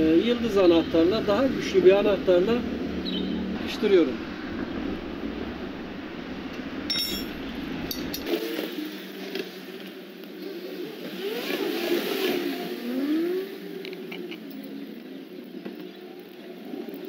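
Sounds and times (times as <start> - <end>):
vehicle engine in background: 0.0 - 17.0
spanner clinking on metal: 6.9 - 8.3.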